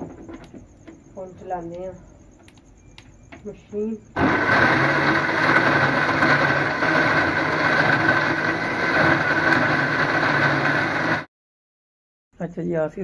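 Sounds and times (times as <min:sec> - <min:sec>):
mixer grinder motor whir: 0:04.2 - 0:11.3.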